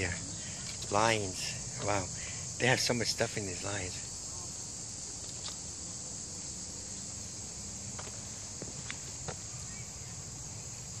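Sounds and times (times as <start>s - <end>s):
high-pitched insect chorus: 0.0s - 11.0s
footsteps on a path: 6.4s - 9.7s.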